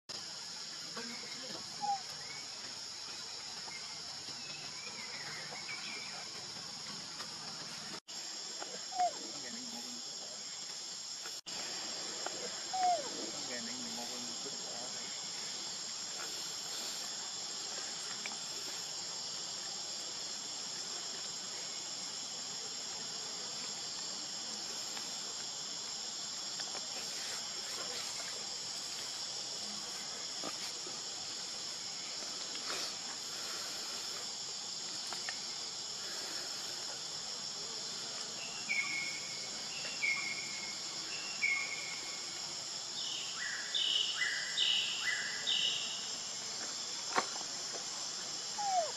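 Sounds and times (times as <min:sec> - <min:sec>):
insects chorus ringing: 0:00.1 - 0:48.9.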